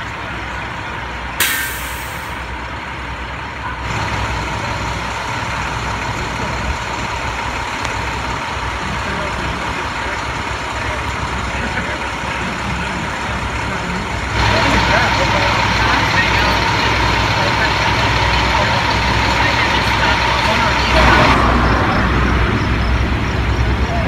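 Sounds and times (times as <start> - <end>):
fire trucks idling: 0.0 - 24.0
air brake hiss: 1.4 - 2.4.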